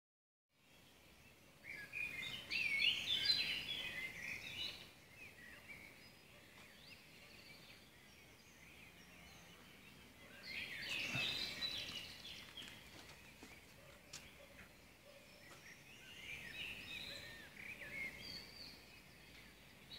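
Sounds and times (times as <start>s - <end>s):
songbirds warbling: 0.6s - 19.9s
faint bird calls: 9.3s - 18.6s.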